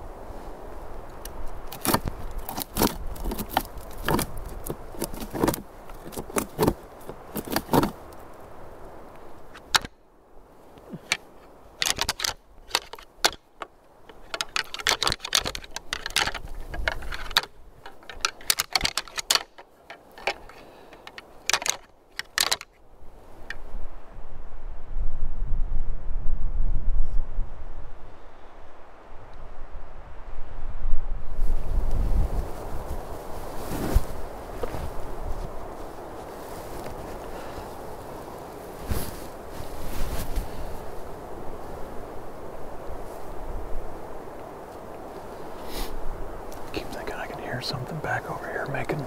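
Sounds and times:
antlers clicking and clashing: 11.8 - 13.4, 14.1 - 22.7.

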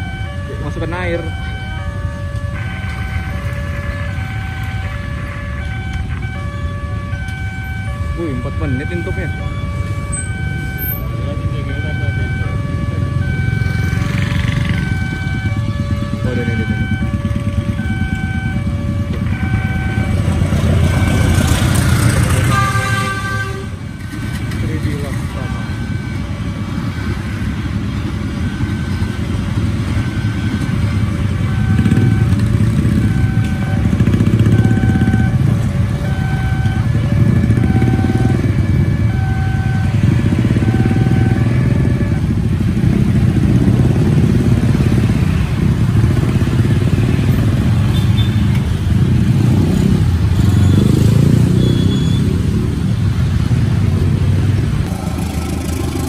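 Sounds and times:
level crossing alarm beeping: 0.0 - 22.7, 24.1 - 42.4
motorcycle engines idling and revving: 0.0 - 56.0.

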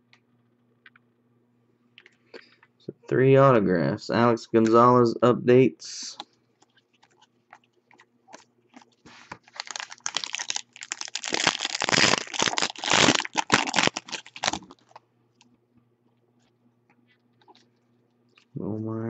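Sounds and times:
foil wrapper tearing and crinkling: 8.3 - 15.0.

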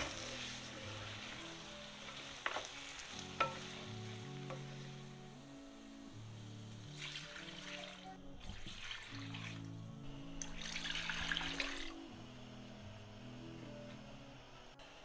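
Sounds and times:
liquid pouring and splashing into pan: 6.9 - 9.7, 10.4 - 11.9.

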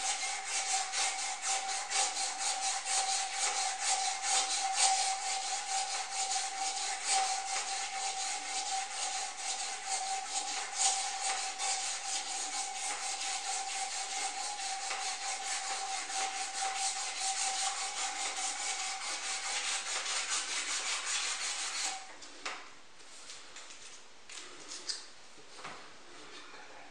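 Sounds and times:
rubbing against metal: 0.0 - 22.1.

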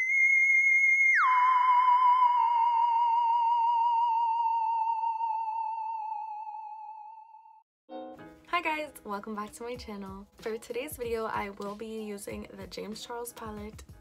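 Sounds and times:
high whistling sci-fi tone: 0.0 - 7.6.

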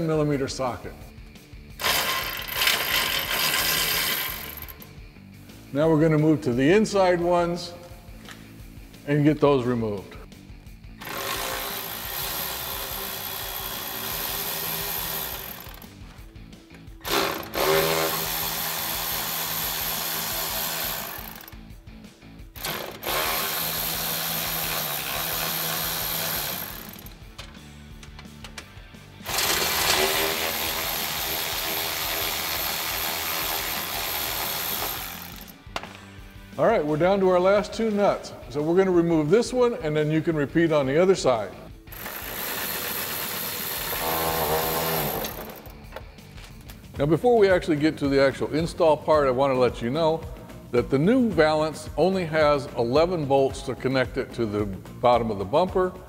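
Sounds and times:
power ratchet whirring: 1.7 - 5.0, 11.0 - 21.7, 22.5 - 36.0, 41.9 - 46.0.

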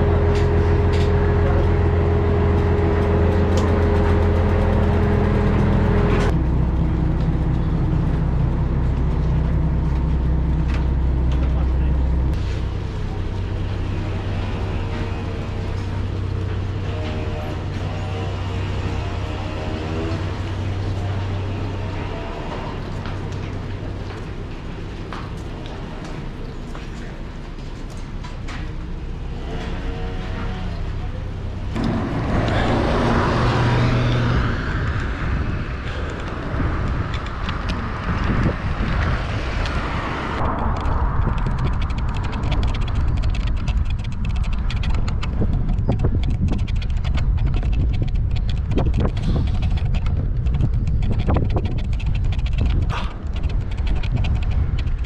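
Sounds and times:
busy street noise: 0.0 - 55.0
motor vehicle hum: 0.0 - 55.0
wind noise on microphone: 31.7 - 55.0
bicycle clicks and rattles: 40.4 - 55.0.

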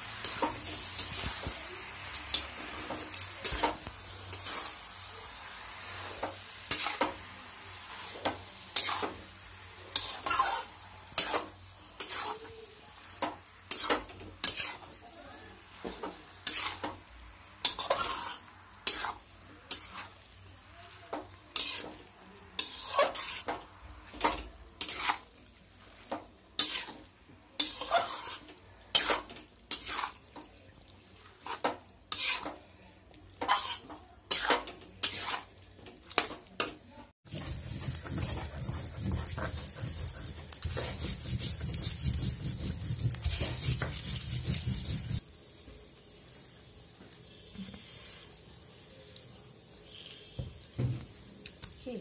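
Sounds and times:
metal spatula scraping pan: 2.1 - 4.9, 5.9 - 7.3, 7.9 - 15.0, 15.8 - 20.2, 21.1 - 30.3, 31.3 - 32.7, 33.3 - 36.3, 37.3 - 45.2.

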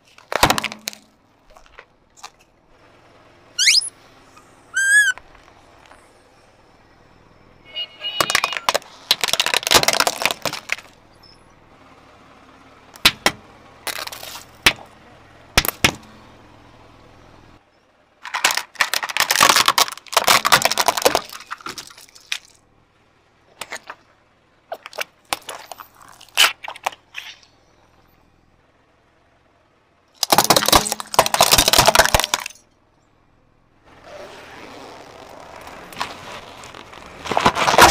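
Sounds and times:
plastic crushed under car tyre: 0.0 - 2.4, 8.2 - 11.0, 13.0 - 14.9, 18.2 - 22.6, 23.6 - 24.1, 24.7 - 27.4, 30.2 - 32.6, 34.0 - 37.9.

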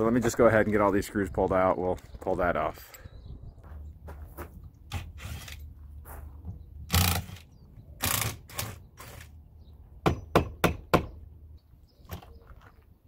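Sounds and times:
cordless drill running: 6.9 - 7.4.

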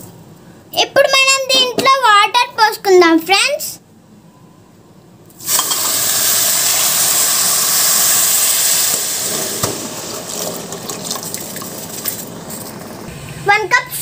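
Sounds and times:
water pouring into metal pan: 5.4 - 13.0.

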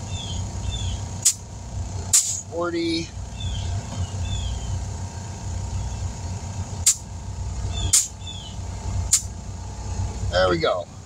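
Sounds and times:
low steady hum: 0.0 - 11.0
short hisses of air: 2.1 - 2.4.

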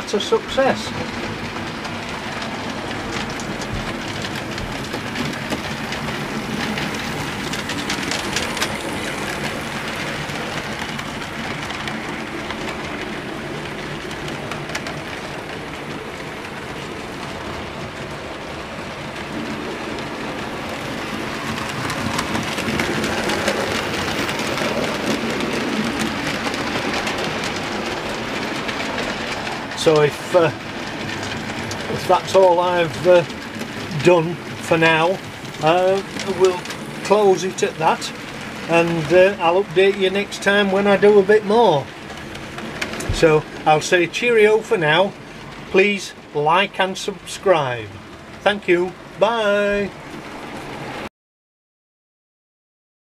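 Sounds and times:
model train rolling: 0.0 - 51.1
wheels clicking over rail joints: 0.0 - 51.1.

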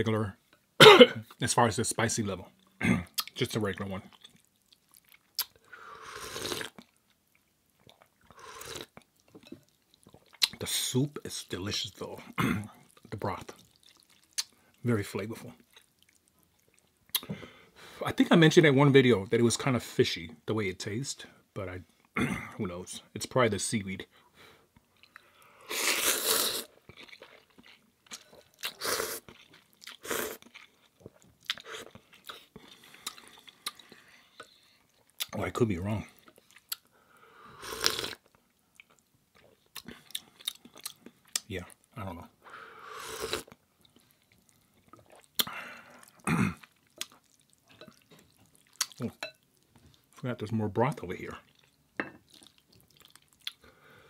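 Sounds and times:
wet chewing with clicks: 2.6 - 3.4, 4.0 - 5.7, 6.5 - 10.6, 12.9 - 14.8, 15.6 - 17.3, 26.8 - 35.4, 36.2 - 36.9, 37.9 - 42.0, 43.3 - 50.2, 51.4 - 53.6
person slurping noodles: 5.8 - 6.8, 8.3 - 8.9, 25.6 - 27.3, 28.6 - 29.3, 29.9 - 30.5, 37.6 - 38.2, 42.7 - 43.5.

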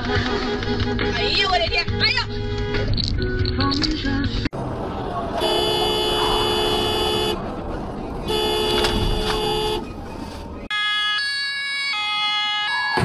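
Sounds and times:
road noise: 0.0 - 13.0
car horn: 5.4 - 7.5, 8.2 - 10.0
two-tone ambulance siren: 10.7 - 13.0.

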